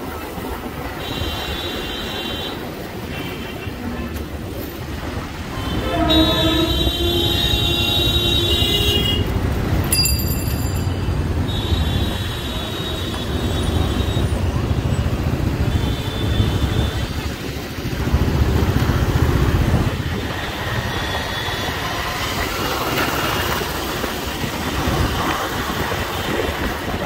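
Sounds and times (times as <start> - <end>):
road traffic rumble: 0.0 - 27.0
low held horn: 5.6 - 8.5
high-pitched horn honks: 5.6 - 9.2.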